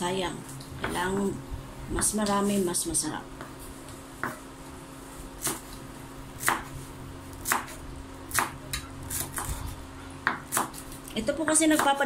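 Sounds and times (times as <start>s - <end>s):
knife chopping on cutting board: 6.4s - 6.7s, 7.4s - 9.6s, 10.2s - 10.9s.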